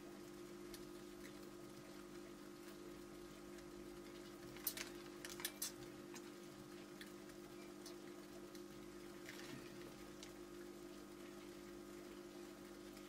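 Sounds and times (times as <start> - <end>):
low electrical hum: 0.0 - 13.0.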